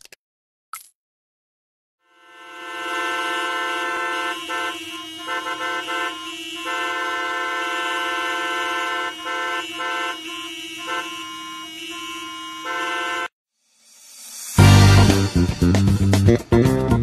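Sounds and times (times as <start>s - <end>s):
car horns honking: 2.1s - 13.3s.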